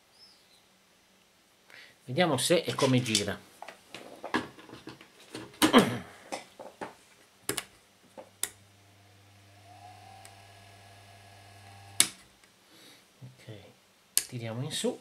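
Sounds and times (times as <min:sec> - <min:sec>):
electric fan motor humming: 0:08.2 - 0:12.2.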